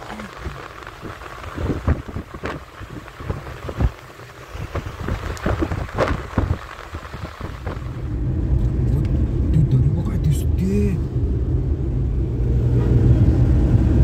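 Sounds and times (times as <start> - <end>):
tyre rumble and hiss: 0.0 - 8.1.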